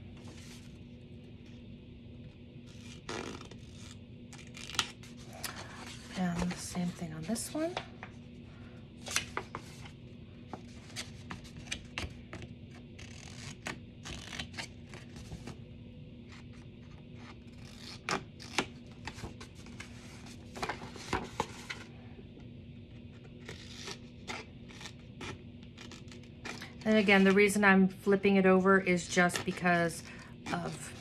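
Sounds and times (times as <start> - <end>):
faint low hum: 0.0 - 31.0
paper rustling: 17.2 - 21.9.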